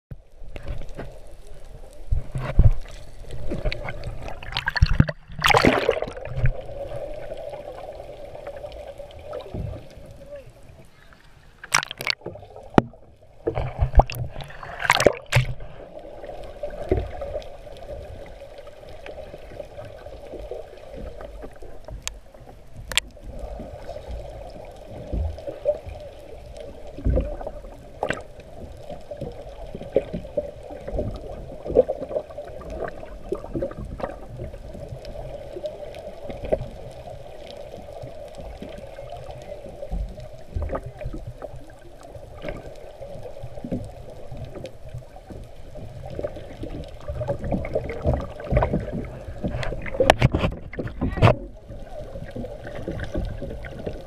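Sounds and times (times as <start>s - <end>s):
underwater gurgles and knocks: 0.1s - 54.0s
underwater hum: 0.1s - 54.0s
loud water splashes: 3.9s - 6.6s, 11.6s - 12.3s, 13.6s - 15.6s.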